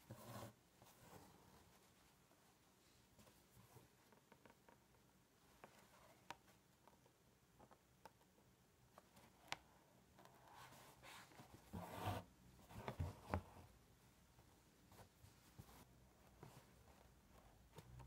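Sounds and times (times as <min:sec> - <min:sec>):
fabric and thread rustling: 0:08.9 - 0:18.0.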